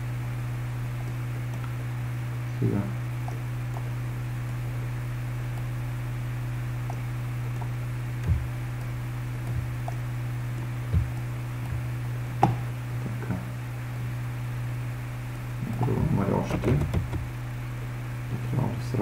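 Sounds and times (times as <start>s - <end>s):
electrical mains hum: 0.0s - 19.0s
soft thumps: 7.6s - 8.6s, 9.5s - 10.0s, 10.6s - 12.7s, 15.8s - 17.3s.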